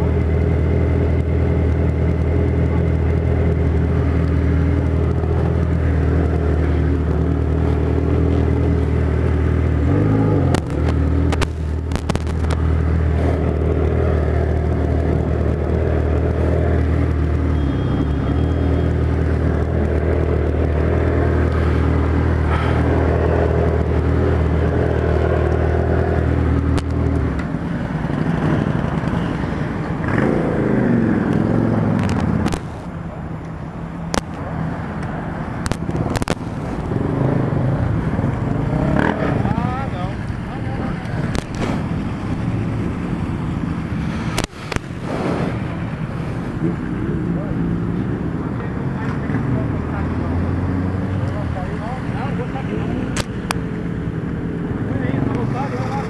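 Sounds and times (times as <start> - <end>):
loud motorcycle engine running: 0.0 - 32.8, 35.6 - 44.5.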